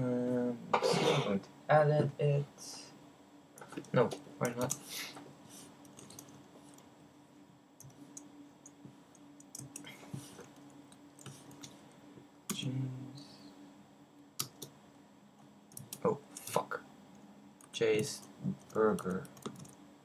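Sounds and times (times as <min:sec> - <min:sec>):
steady low hum: 0:00.0 - 0:20.0
computer keyboard key presses: 0:18.0 - 0:19.8.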